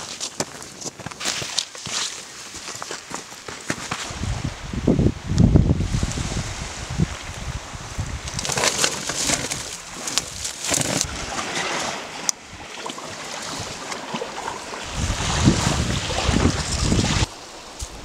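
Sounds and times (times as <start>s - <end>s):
wind gusting over microphone: 4.0s - 11.8s, 14.4s - 18.0s.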